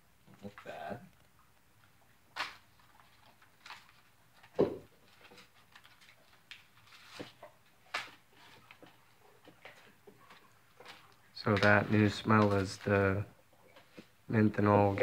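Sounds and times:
packaging crinkling and rustling: 2.4 - 14.2.

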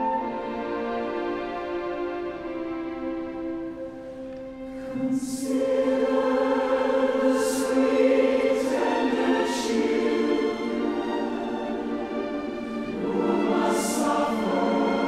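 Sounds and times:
choir singing slow held notes: 4.6 - 15.0.

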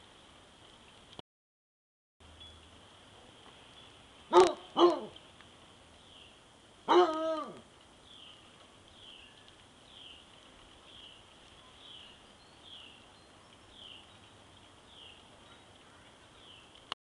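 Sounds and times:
dog barking: 4.3 - 5.2, 6.9 - 7.5.

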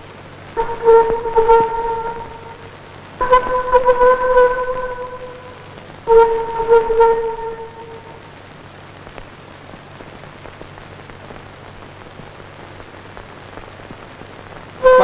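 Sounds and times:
faint crackles: 0.0 - 15.0
steady hiss: 0.0 - 15.0.

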